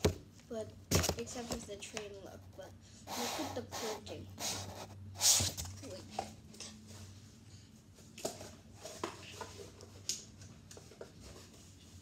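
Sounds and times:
pen scratching on cardboard: 0:03.1 - 0:05.6.

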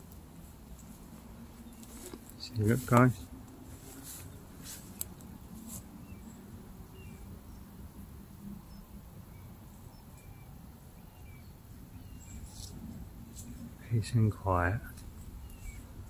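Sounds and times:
small birds chirping: 0:00.1 - 0:16.0
short rustle: 0:00.4 - 0:05.9.

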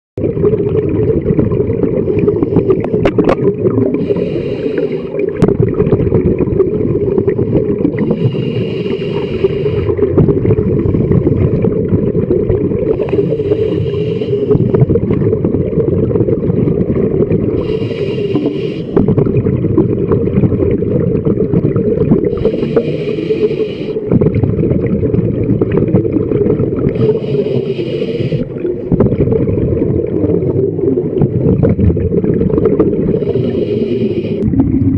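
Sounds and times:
low rumble of water: 0:00.2 - 0:34.9
diver breathing through regulator: 0:02.1 - 0:03.0, 0:03.9 - 0:05.4, 0:07.4 - 0:11.6, 0:12.9 - 0:15.1, 0:17.6 - 0:19.1, 0:22.2 - 0:24.1, 0:26.9 - 0:28.8, 0:33.0 - 0:34.6.

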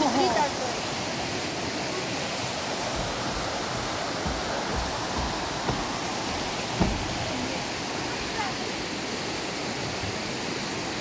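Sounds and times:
river water rushing over rocks: 0:00.0 - 0:11.0.

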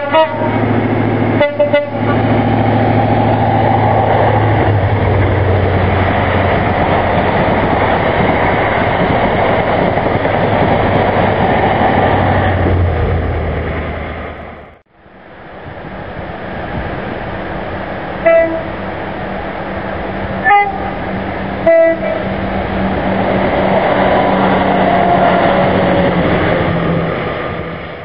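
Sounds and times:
train two-tone horn: 0:00.0 - 0:00.7, 0:01.3 - 0:03.2, 0:18.2 - 0:19.0, 0:20.4 - 0:22.6
diesel train engine hum: 0:00.0 - 0:28.0
train wheel noise: 0:00.0 - 0:28.0.

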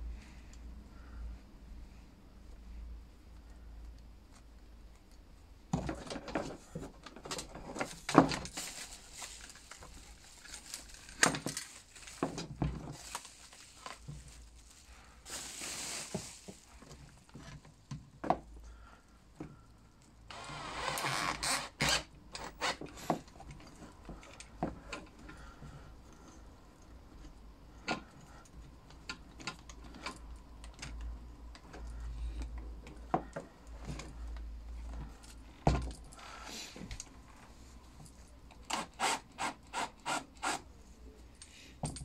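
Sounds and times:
rustling: 0:06.0 - 0:17.8.

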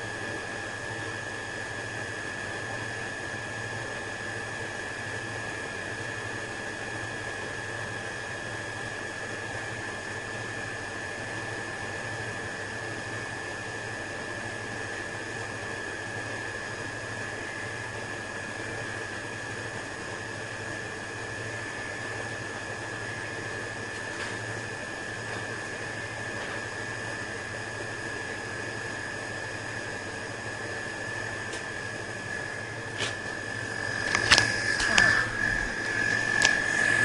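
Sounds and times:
welder fan hiss and hum: 0:00.0 - 0:37.0
high-pitched whine: 0:29.5 - 0:37.0.

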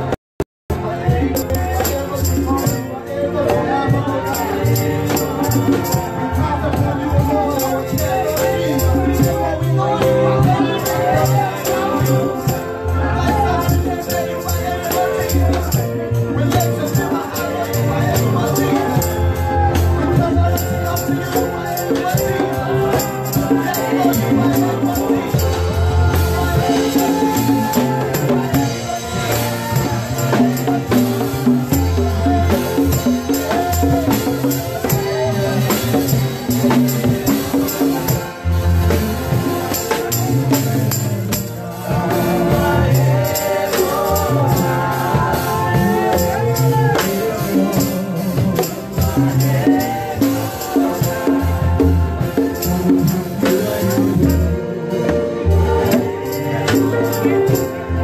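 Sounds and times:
group of singers: 0:00.0 - 0:58.0
hand percussion shaking: 0:01.3 - 0:02.9, 0:04.3 - 0:09.7, 0:10.4 - 0:41.6.

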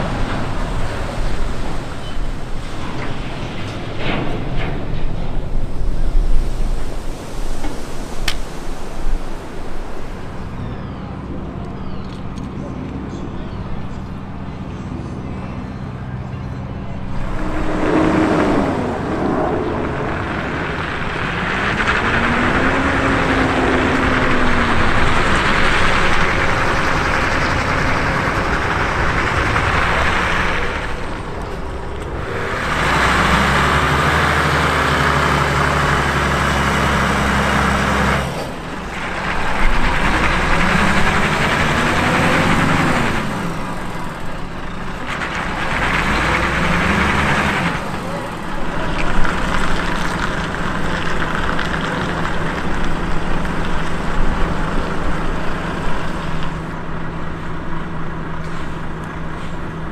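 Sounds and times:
truck diesel engine running: 0:00.0 - 0:59.9.

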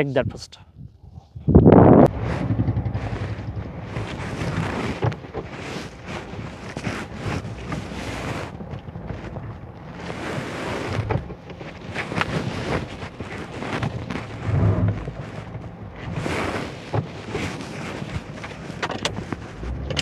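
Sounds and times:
wind buffeting microphone: 0:00.2 - 0:20.0
motorcycle engine pulling away: 0:02.0 - 0:08.6.

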